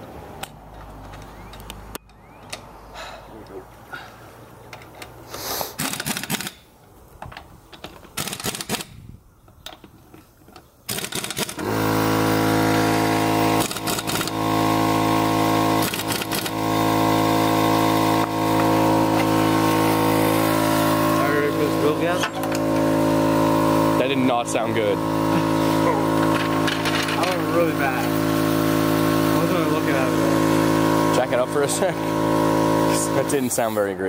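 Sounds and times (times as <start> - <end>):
pneumatic impact wrench: 5.3 - 6.7, 8.1 - 9.1, 10.9 - 24.3, 24.9 - 33.9
loud steady machine drone: 11.6 - 33.5.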